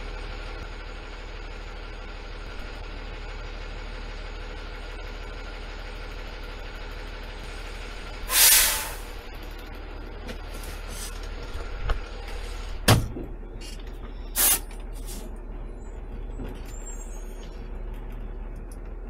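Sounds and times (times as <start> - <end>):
diesel truck engine idling: 0.0 - 19.0
air brake hiss: 8.3 - 9.1, 14.3 - 15.2
cab door slamming: 12.8 - 13.3.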